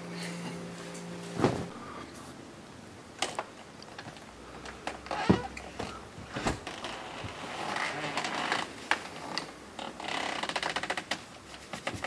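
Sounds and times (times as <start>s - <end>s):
storm door shutting thump: 1.4s - 1.8s, 5.2s - 7.4s.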